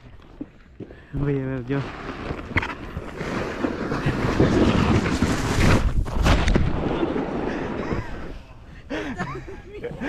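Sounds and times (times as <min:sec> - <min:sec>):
board sliding on snow: 0:01.6 - 0:08.6.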